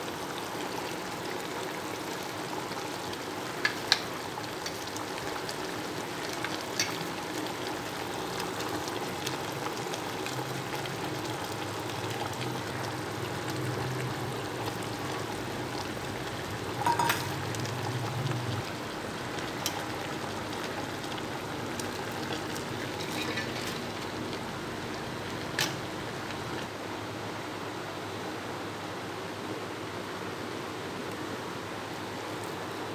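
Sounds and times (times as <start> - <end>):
gravy sizzling in a pot: 0.0 - 26.8
utensil clattering on pot: 16.8 - 17.4, 22.9 - 24.0.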